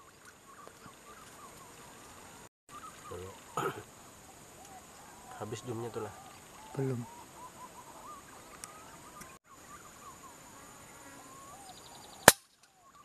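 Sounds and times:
faint bird chirps: 0:00.0 - 0:13.0
air rifle shot: 0:12.2 - 0:12.5.

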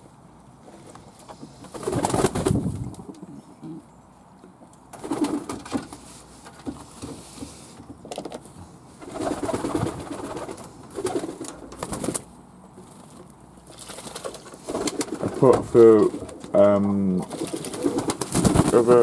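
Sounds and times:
wings flapping: 0:01.6 - 0:03.2, 0:04.9 - 0:06.0, 0:09.0 - 0:12.3, 0:13.7 - 0:16.5, 0:17.2 - 0:19.0
pigeons cooing: 0:01.7 - 0:03.9, 0:13.9 - 0:19.0.

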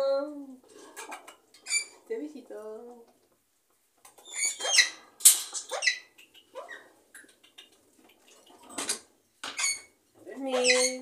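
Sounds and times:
parrots squawking and whistling: 0:04.2 - 0:05.0, 0:05.6 - 0:06.9, 0:09.6 - 0:09.9, 0:10.6 - 0:11.0.

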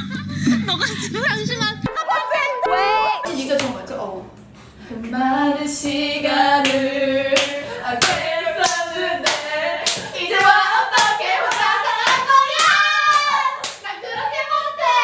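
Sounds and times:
women singing a chant: 0:01.9 - 0:04.3, 0:04.9 - 0:15.0
hand clapping game: 0:06.6 - 0:14.0.

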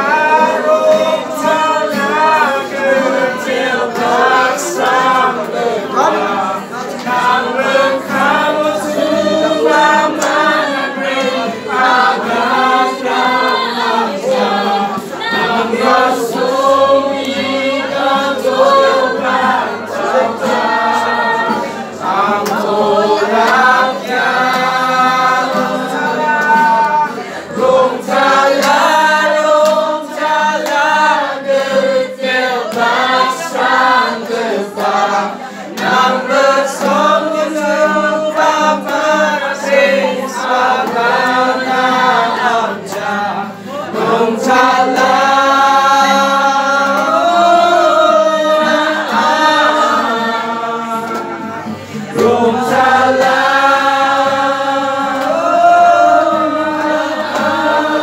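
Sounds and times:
group singing unaccompanied: 0:00.0 - 0:58.0
hand claps: 0:03.5 - 0:14.6, 0:21.5 - 0:42.0, 0:46.8 - 0:47.4, 0:50.9 - 0:58.0.

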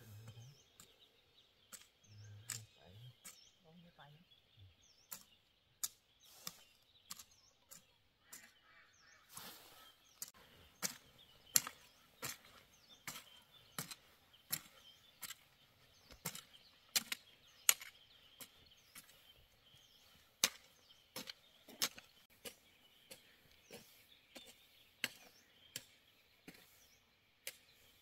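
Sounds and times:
sharp chopping strikes: 0:20.4 - 0:22.6.

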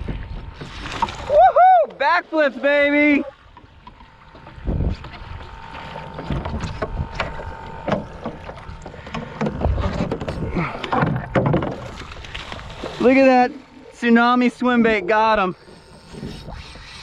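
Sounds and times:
water sloshing: 0:00.0 - 0:16.9
knocks and clicks of rod and board: 0:06.1 - 0:12.2.

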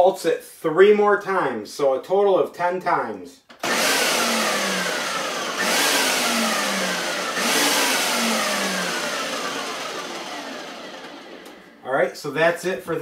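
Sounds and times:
food processor pulsing: 0:03.6 - 0:11.8.

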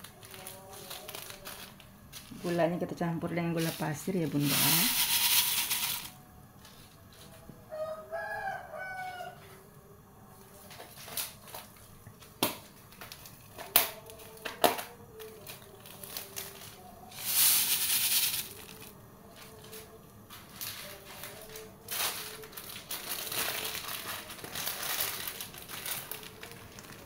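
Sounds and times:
sugar pouring hiss: 0:03.8 - 0:06.2, 0:17.1 - 0:19.0
rooster crowing: 0:07.3 - 0:09.8.

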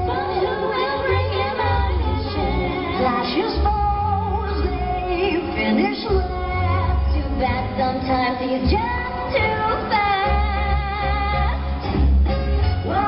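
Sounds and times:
woman singing: 0:00.0 - 0:11.9, 0:12.8 - 0:13.0.

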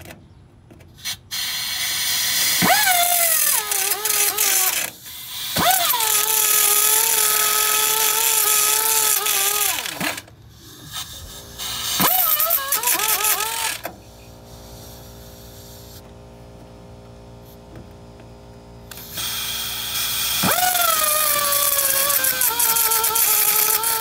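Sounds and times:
belt sander grinding steel: 0:01.9 - 0:13.9, 0:18.9 - 0:24.0.

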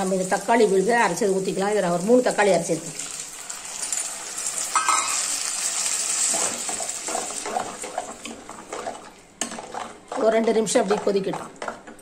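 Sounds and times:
paste sizzling in hot oil: 0:00.0 - 0:08.8.

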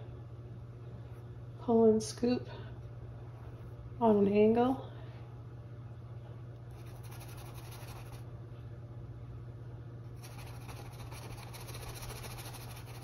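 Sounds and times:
paintbrush scratching canvas: 0:06.7 - 0:08.2, 0:10.2 - 0:13.0.

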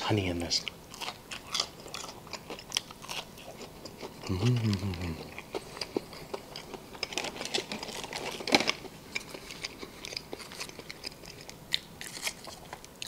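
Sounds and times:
quiet chewing: 0:00.5 - 0:13.0
plastic container crinkling: 0:07.0 - 0:10.8.

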